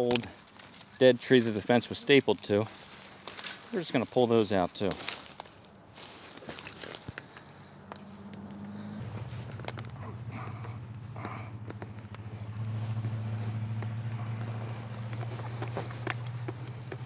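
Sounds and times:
low engine-like drone: 0:07.2 - 0:17.0.

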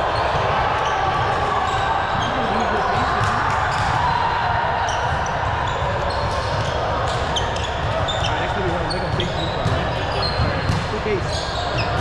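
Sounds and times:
hubbub of voices in a hall: 0:00.0 - 0:12.0
ball impacts: 0:09.1 - 0:11.1.

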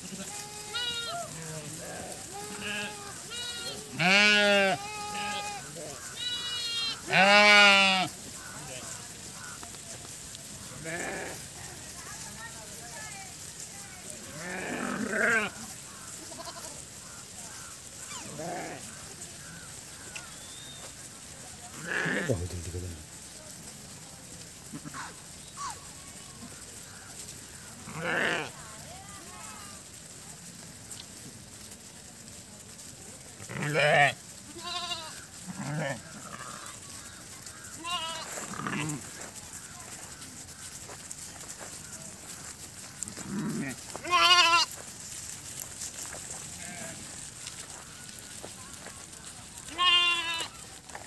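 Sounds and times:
sheep bleating: 0:00.0 - 0:09.6, 0:10.7 - 0:11.5, 0:14.2 - 0:20.6, 0:21.7 - 0:23.1, 0:27.6 - 0:28.6, 0:33.4 - 0:40.6, 0:43.0 - 0:44.8, 0:46.5 - 0:49.0, 0:49.6 - 0:50.7.

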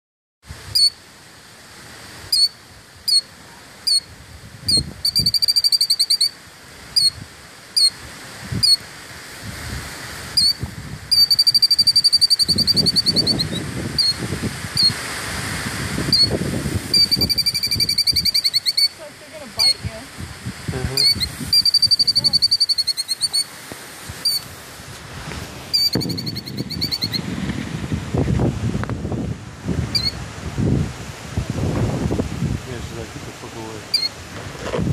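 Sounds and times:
bird alarm calls: 0:00.7 - 0:01.0, 0:02.3 - 0:04.1, 0:04.7 - 0:06.4, 0:07.0 - 0:07.2, 0:07.8 - 0:08.0, 0:08.6 - 0:08.8, 0:10.4 - 0:14.2, 0:14.8 - 0:15.0, 0:16.1 - 0:19.0, 0:19.6 - 0:19.9, 0:21.0 - 0:23.5, 0:24.2 - 0:24.5, 0:25.7 - 0:27.2, 0:29.9 - 0:30.2, 0:33.9 - 0:34.2
rapid bird trills: 0:00.8 - 0:01.0, 0:02.3 - 0:03.3, 0:04.7 - 0:06.4, 0:07.0 - 0:07.2, 0:07.8 - 0:08.0, 0:10.4 - 0:14.2, 0:14.8 - 0:15.0, 0:16.1 - 0:19.0, 0:21.0 - 0:23.5, 0:24.2 - 0:24.5, 0:25.7 - 0:27.2, 0:29.9 - 0:30.2, 0:33.9 - 0:34.2.

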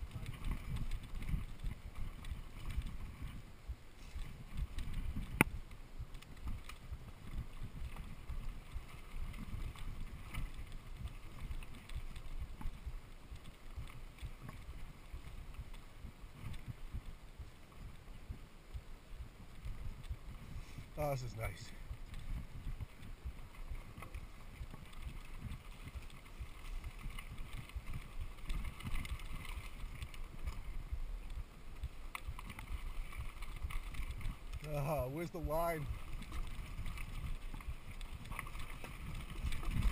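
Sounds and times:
bike rumbling over dirt: 0:00.0 - 0:39.9
bike ticks and rattles: 0:00.0 - 0:39.9
wind buffeting microphone: 0:00.0 - 0:39.9.

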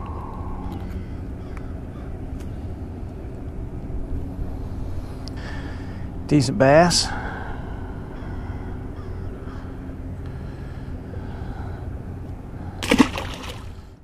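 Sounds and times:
steady background rumble: 0:00.0 - 0:14.0
fish splashing into water: 0:12.8 - 0:13.8.

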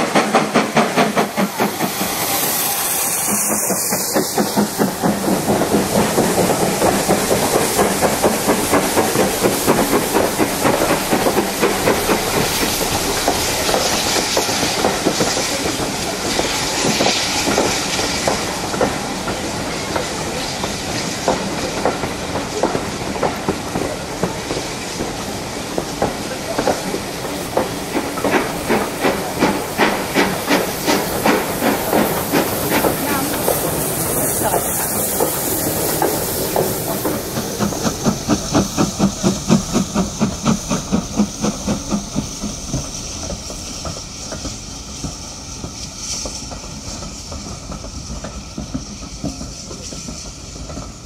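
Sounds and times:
steam hissing: 0:00.0 - 0:51.0
steam locomotive exhaust beats: 0:00.0 - 0:51.0
train wheels clattering over rails: 0:00.0 - 0:51.0.

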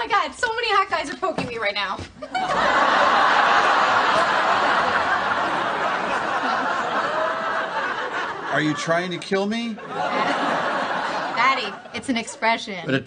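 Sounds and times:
audience laughing: 0:02.2 - 0:12.1.

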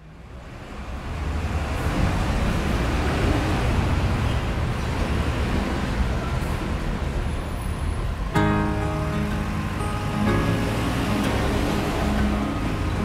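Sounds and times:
road traffic rumble and hiss: 0:00.0 - 0:13.0.

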